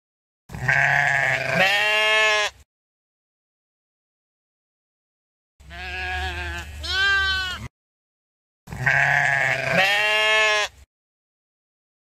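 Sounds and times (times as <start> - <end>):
sheep bleating: 0.5 - 2.6, 5.6 - 7.7, 8.7 - 10.8.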